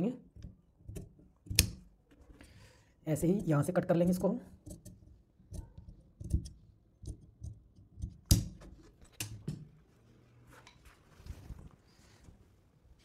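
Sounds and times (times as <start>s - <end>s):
fabric rustling: 9.7s - 13.0s.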